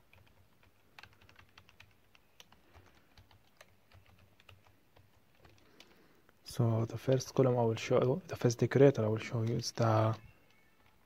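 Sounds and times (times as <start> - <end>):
keyboard typing clicks: 0.1 - 5.9.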